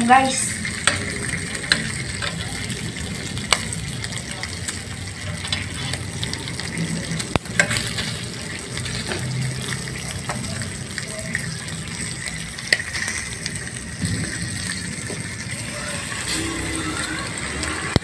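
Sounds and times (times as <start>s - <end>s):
meat sizzling in skillet: 0.0s - 18.0s
metal tongs clicking on pan: 0.7s - 2.4s, 7.3s - 8.1s.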